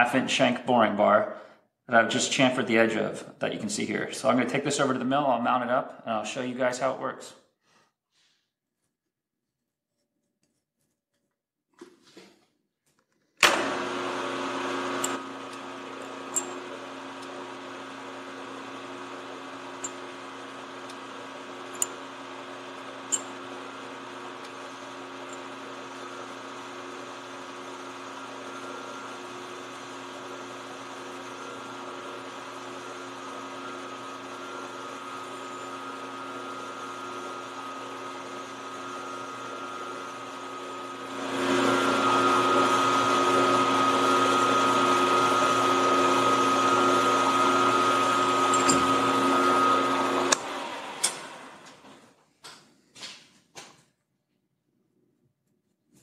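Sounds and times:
milling machine motor whine: 0:13.4 - 0:52.0
tool cutting steel: 0:14.8 - 0:17.4, 0:19.8 - 0:20.2, 0:20.8 - 0:26.4, 0:32.5 - 0:38.4, 0:45.4 - 0:51.3.

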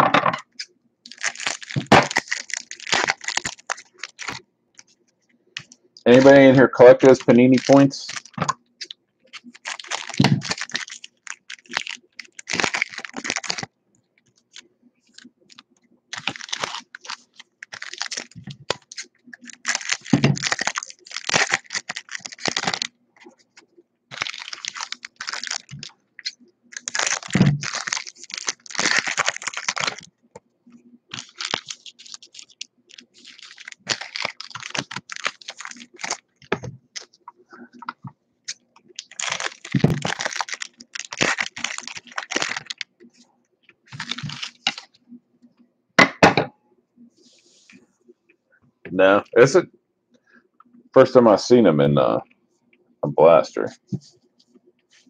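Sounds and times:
foil wrappers rustling: 0:00.6 - 0:05.0, 0:05.6 - 0:13.7, 0:14.3 - 0:30.1, 0:31.1 - 0:37.2, 0:37.8 - 0:43.0, 0:43.8 - 0:45.0.

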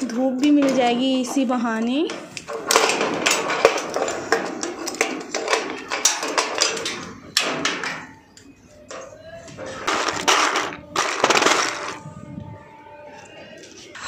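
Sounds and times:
metal door rattling: 0:00.0 - 0:12.0.

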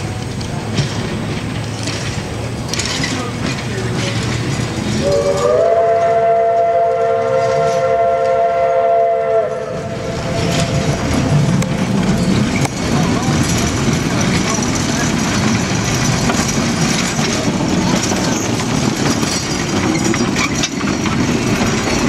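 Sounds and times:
wheels rumbling on rails: 0:00.0 - 0:22.0
trolley multi-tone whistle: 0:05.0 - 0:10.9.

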